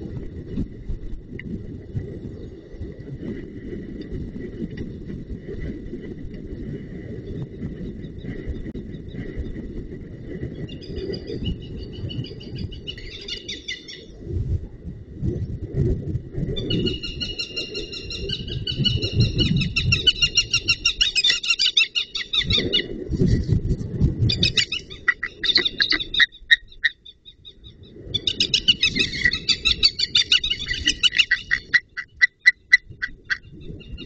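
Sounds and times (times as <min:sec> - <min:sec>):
birds of prey calling: 0:10.7 - 0:14.1, 0:16.6 - 0:22.9, 0:24.3 - 0:34.0
low rumble: 0:14.0 - 0:17.2, 0:22.3 - 0:34.0.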